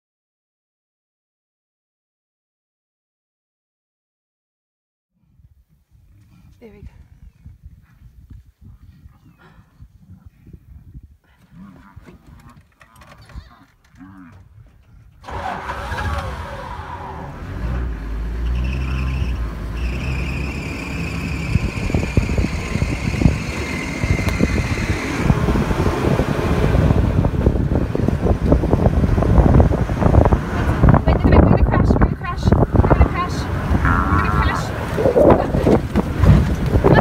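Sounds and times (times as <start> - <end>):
vehicle engine starting and running: 15.2 - 37.0
vehicle body knocking and rattling: 35.7 - 37.0.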